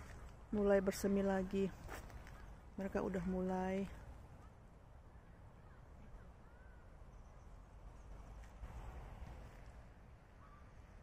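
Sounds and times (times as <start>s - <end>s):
faint bird chirps: 3.9s - 8.6s, 10.3s - 11.0s
wind rumble on microphone: 7.8s - 11.0s.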